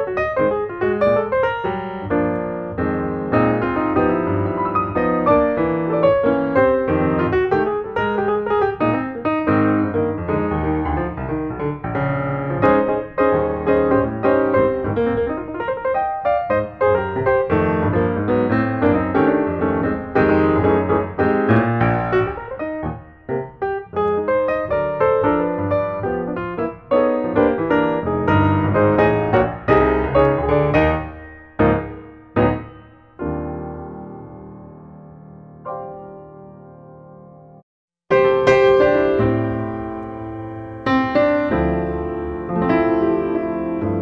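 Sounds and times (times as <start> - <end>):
piano music: 0.0 - 44.0.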